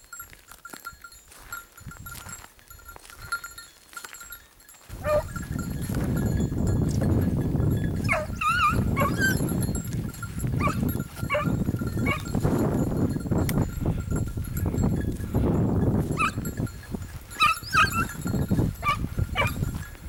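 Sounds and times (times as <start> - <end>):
hounds yelping: 5.0 - 5.4, 7.9 - 9.6, 10.6 - 12.4, 16.1 - 16.4, 17.3 - 19.7
hound howling: 8.0 - 9.4, 17.4 - 18.1.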